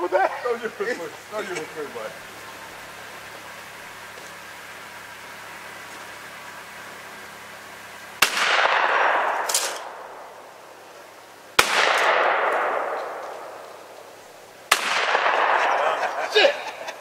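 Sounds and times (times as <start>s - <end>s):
shotgun shots echoing: 8.2s - 10.4s, 11.6s - 14.0s, 14.7s - 16.1s.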